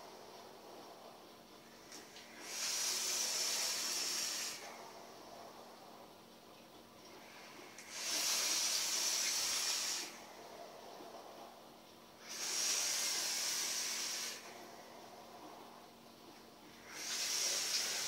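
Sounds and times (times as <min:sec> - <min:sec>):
vape hissing: 0:02.4 - 0:04.7, 0:07.8 - 0:10.2, 0:12.2 - 0:14.5, 0:16.8 - 0:18.0.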